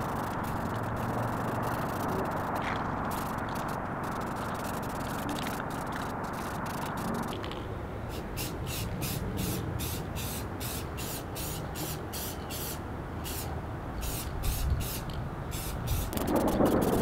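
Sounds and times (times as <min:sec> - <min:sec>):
aerosol spray can hissing: 0:08.1 - 0:16.4.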